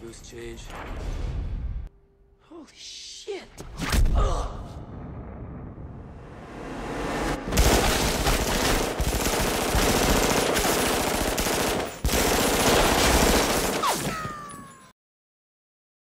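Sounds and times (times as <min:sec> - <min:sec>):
automatic gunfire: 0:07.6 - 0:14.1.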